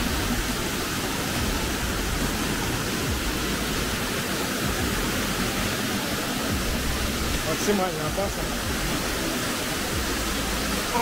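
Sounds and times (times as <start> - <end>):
stream rushing over stones: 0.0 - 11.0.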